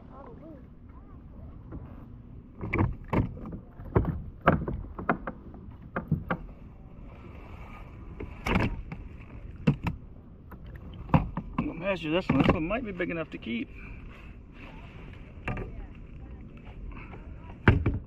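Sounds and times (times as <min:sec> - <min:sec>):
knocks against kayak hull: 0:02.6 - 0:06.5, 0:09.6 - 0:10.0, 0:17.6 - 0:18.0.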